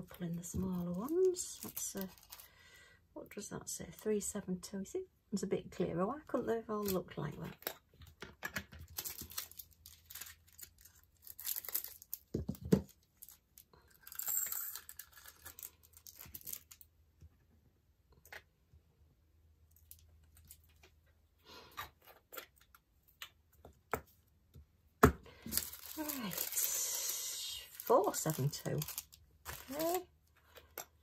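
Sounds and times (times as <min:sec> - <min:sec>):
plastic bags crinkling: 0:00.0 - 0:02.5, 0:08.8 - 0:16.9, 0:25.3 - 0:30.8.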